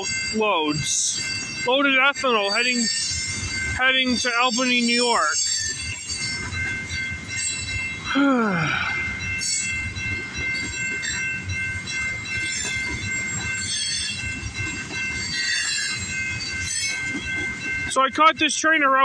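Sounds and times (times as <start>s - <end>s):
rail clacks: 0.0s - 8.2s, 8.8s - 19.0s
train wheels rumbling: 0.0s - 19.0s
high wheel squeal: 2.3s - 7.8s.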